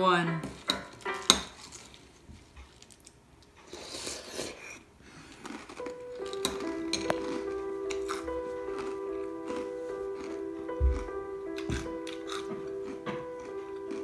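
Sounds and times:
music with held tones: 0.0 - 1.9, 5.8 - 14.0.

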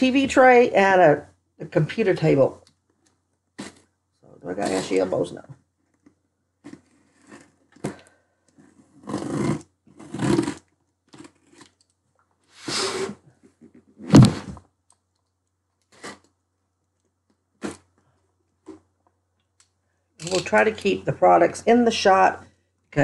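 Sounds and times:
box cutter slicing packing tape: 9.0 - 10.6.

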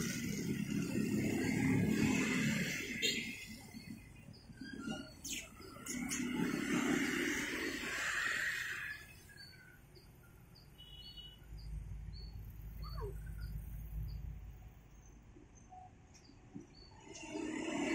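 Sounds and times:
small bird chirping: 3.0 - 7.4, 8.4 - 17.2.

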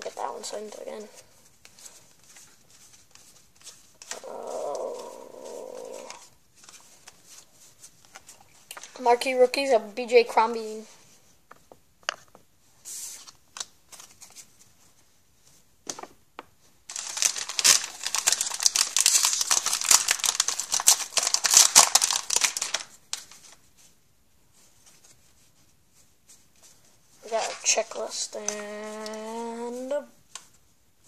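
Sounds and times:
foil wrapper crinkling: 16.9 - 23.6.

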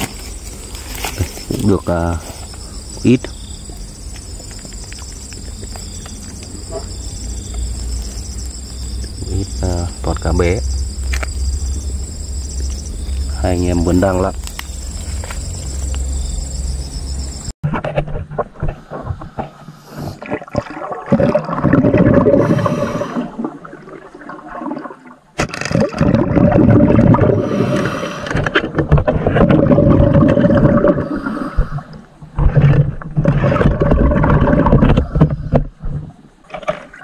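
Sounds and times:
muffled underwater churning: 17.9 - 37.0.

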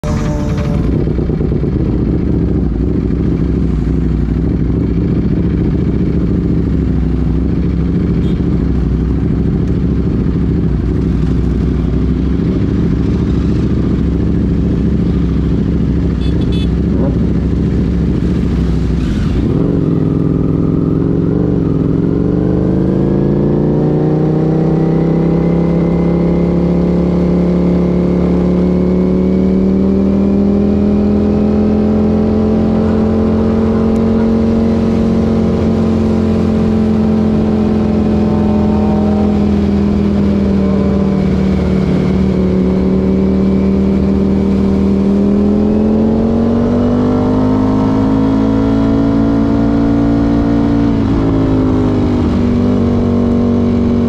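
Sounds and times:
motorcycle engine idling: 0.0 - 18.3
motorcycle accelerating away: 9.2 - 54.0.

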